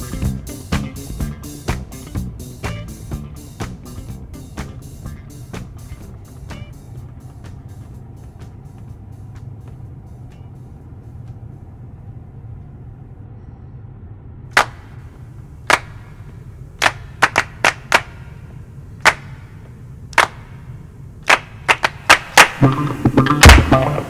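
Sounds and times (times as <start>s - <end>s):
low steady hum: 0.0s - 24.0s
sharp snaps: 14.6s - 15.0s, 15.7s - 24.0s.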